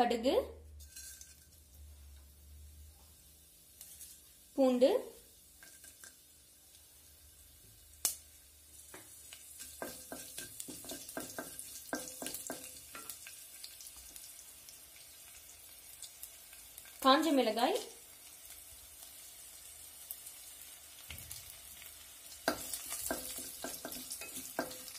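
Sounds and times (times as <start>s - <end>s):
seeds sizzling in hot oil: 0.7s - 24.9s
wooden spatula stirring: 9.0s - 13.1s.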